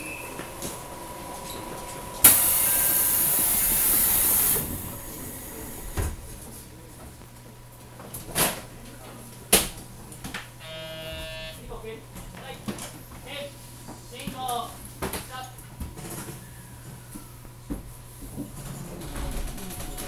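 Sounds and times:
compressed air hiss: 2.2 - 5.1.

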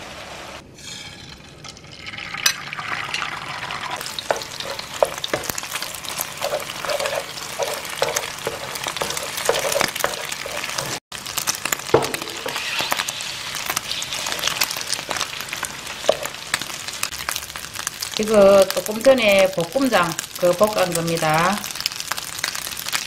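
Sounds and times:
egg sizzling in oil: 0.5 - 23.0
spatula tapping and scraping pan: 4.0 - 11.0, 11.9 - 13.1, 13.7 - 16.4.

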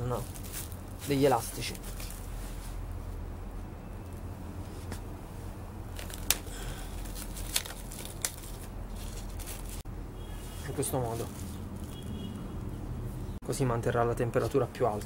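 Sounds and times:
plastic cling film crinkling: 0.0 - 2.4, 5.9 - 9.8, 10.4 - 12.2.

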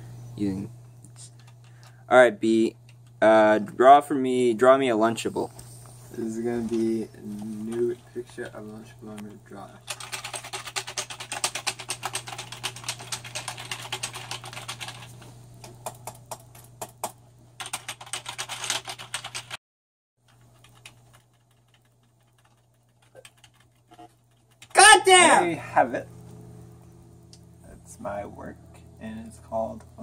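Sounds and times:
steady low hum: 0.0 - 18.6, 20.3 - 30.0
computer keyboard typing: 6.7 - 19.6, 20.3 - 24.8.

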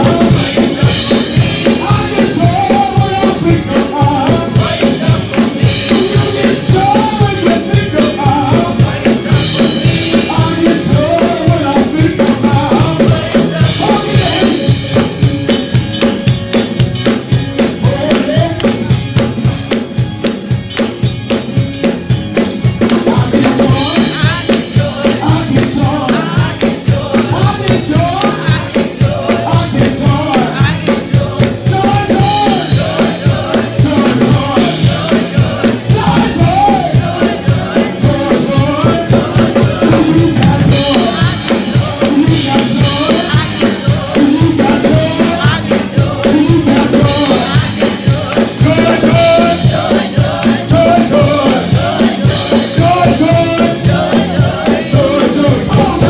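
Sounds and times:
person singing into a microphone: 0.0 - 16.0, 22.8 - 56.0
drums: 0.0 - 56.0
tambourine: 0.0 - 56.0.

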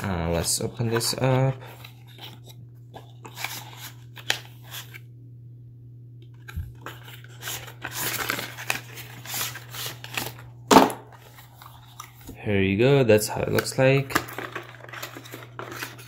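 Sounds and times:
steady low hum: 0.0 - 14.4
cardboard rustling and scraping: 0.3 - 5.0, 6.4 - 10.4, 14.1 - 16.0.

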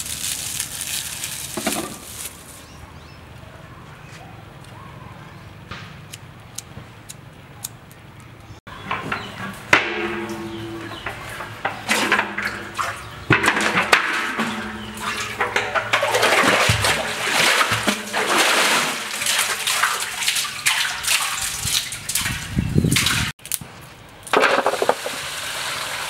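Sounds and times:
bucket splashing into water: 9.7 - 23.3
water streaming off bucket: 10.0 - 23.3, 24.4 - 26.0.

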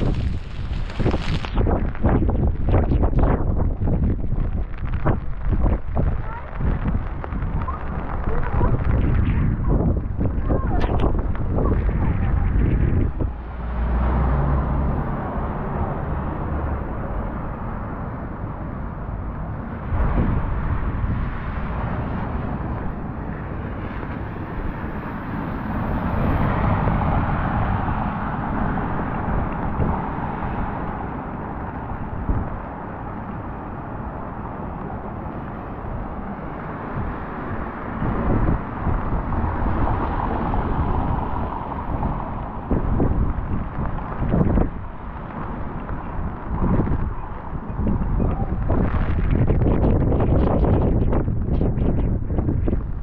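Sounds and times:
car tyres hissing on wet road: 0.0 - 2.5, 12.3 - 17.8, 19.9 - 49.4
rain: 0.0 - 53.0
wind buffeting microphone: 0.0 - 53.0.

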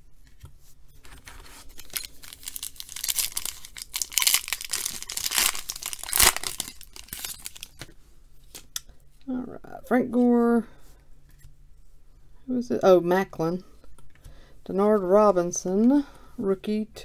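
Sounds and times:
foil wrapper crinkling and tearing: 1.2 - 7.9.

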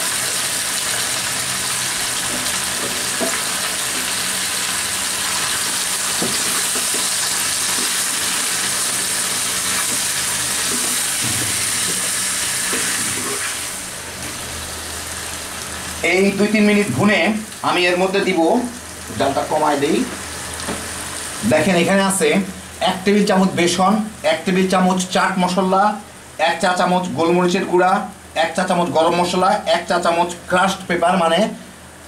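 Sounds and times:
chicken sizzling in hot oil: 0.0 - 25.8.

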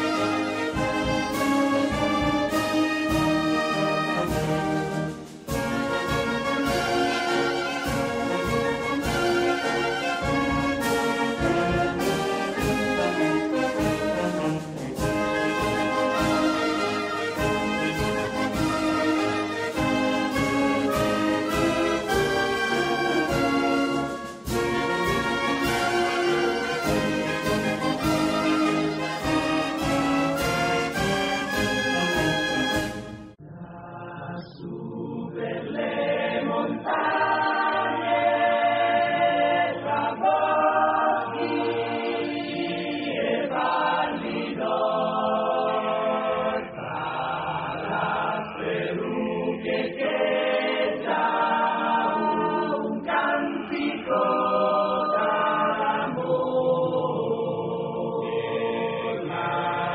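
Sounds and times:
brass music: 0.0 - 33.4
choir singing a slow song: 0.0 - 59.9.

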